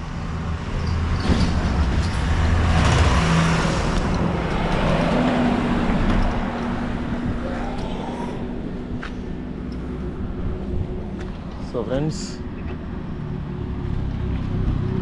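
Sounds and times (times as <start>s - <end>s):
low engine hum: 0.0s - 15.0s
truck driving past: 0.2s - 7.4s.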